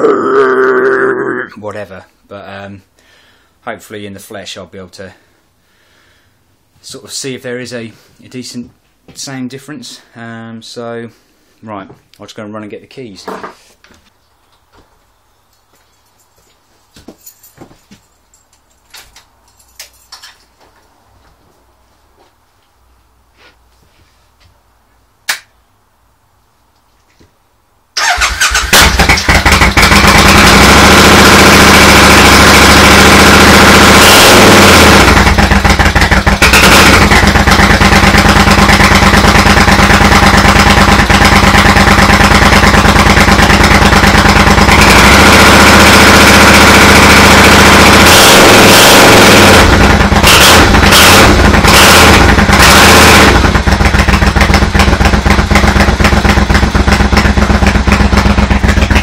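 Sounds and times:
motorcycle engine revving: 28.0 - 59.0.

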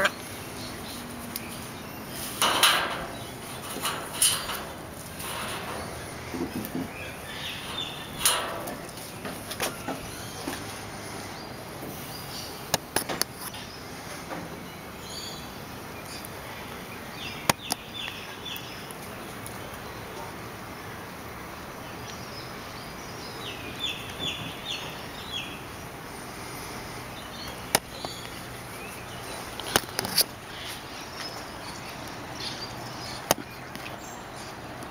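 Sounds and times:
high falling bird chirps: 0.0 - 12.7.

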